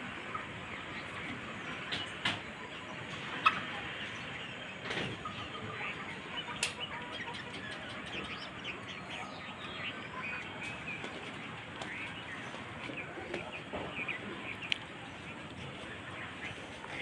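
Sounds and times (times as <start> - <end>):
small birds chirping: 0.0 - 17.0
faint clicks: 14.5 - 14.9.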